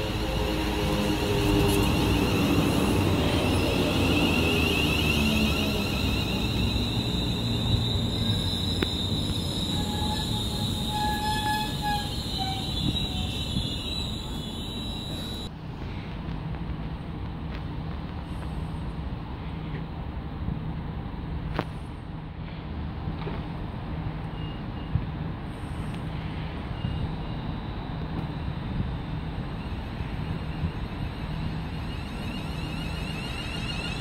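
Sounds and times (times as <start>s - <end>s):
train traction motor whine: 0.0s - 15.5s, 26.7s - 34.0s
high-pitched electrical whine: 26.8s - 34.0s.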